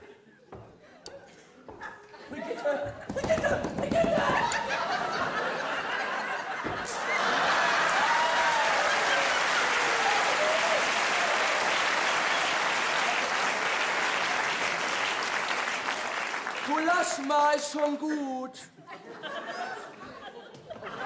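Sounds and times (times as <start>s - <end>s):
audience laughter: 4.1s - 9.8s, 18.8s - 21.0s
audience applauding: 6.0s - 18.1s.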